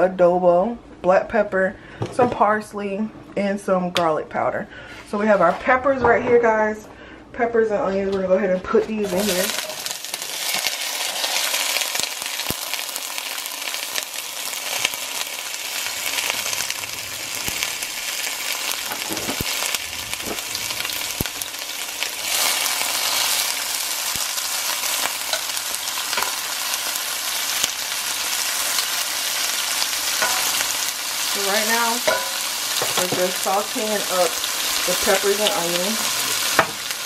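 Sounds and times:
vegetables sizzling in hot oil: 0:09.0 - 0:37.0.

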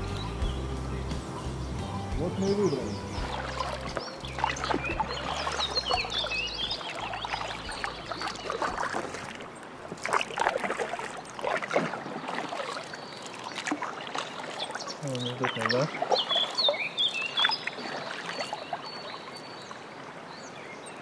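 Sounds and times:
paddle splashing in water: 0:00.0 - 0:20.3.

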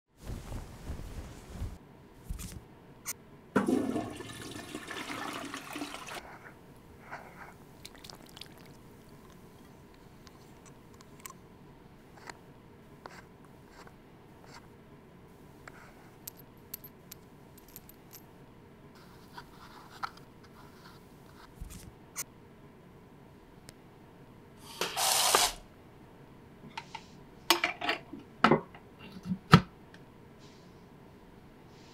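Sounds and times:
toilet flushing water rush: 0:03.6 - 0:06.2.

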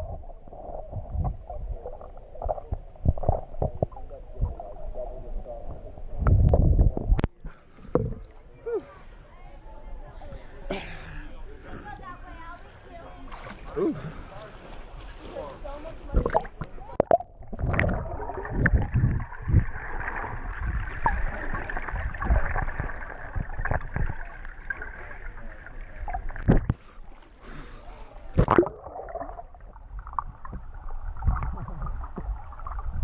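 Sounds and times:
underwater bubbles gurgling: 0:00.0 - 0:08.6, 0:16.0 - 0:33.0
water splashing: 0:12.3 - 0:33.0.

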